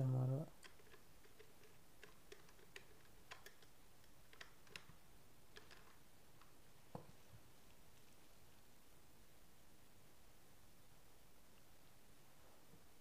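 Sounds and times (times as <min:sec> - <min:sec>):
screwdriver clicking on screw: 0:00.6 - 0:04.9.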